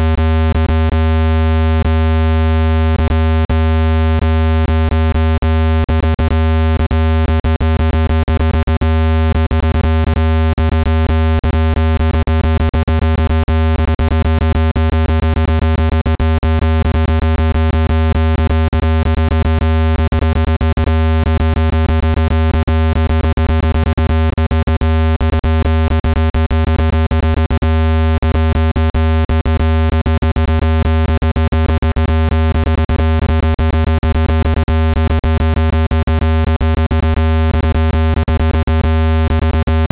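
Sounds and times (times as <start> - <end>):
deep buzzing tone with clicks: 0.0 - 39.9.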